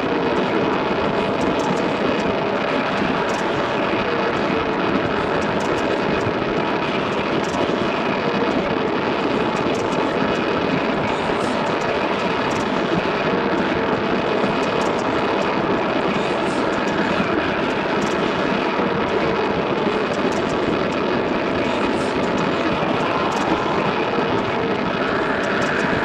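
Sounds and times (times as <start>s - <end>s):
harsh electronic noise music: 8.6s - 26.0s.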